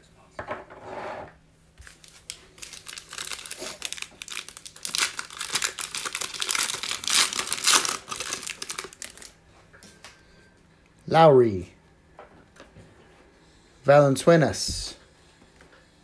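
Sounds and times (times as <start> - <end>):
foil wrapper crinkling: 1.8 - 9.4.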